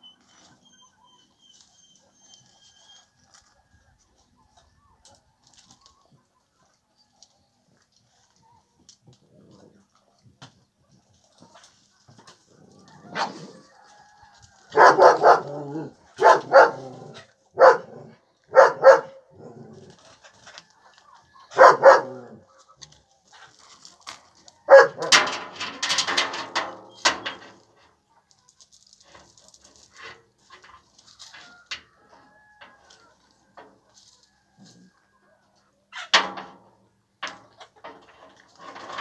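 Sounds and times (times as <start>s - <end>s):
dogs barking: 13.0s - 13.6s, 14.7s - 19.7s, 21.5s - 22.5s, 24.7s - 25.2s.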